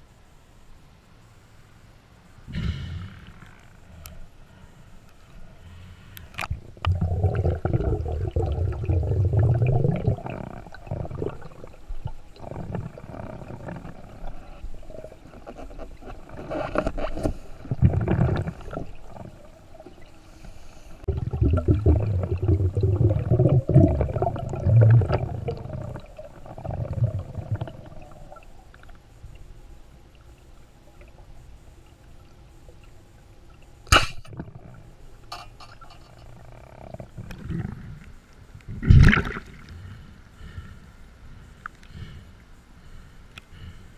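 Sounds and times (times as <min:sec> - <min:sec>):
underwater rumbling: 0:06.4 - 0:40.0
speargun firing crack: 0:33.9 - 0:34.3.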